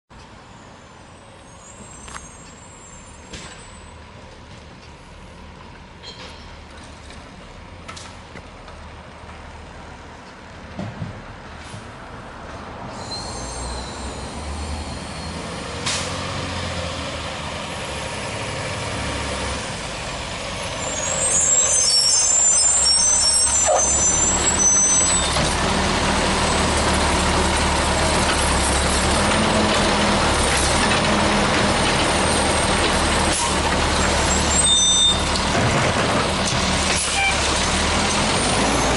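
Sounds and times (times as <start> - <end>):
brake squeals: 0.2 - 5.1, 6.0 - 7.0, 12.9 - 16.9, 18.8 - 38.9
garbage truck diesel engine: 0.2 - 38.9
air brake hiss: 12.9 - 16.2.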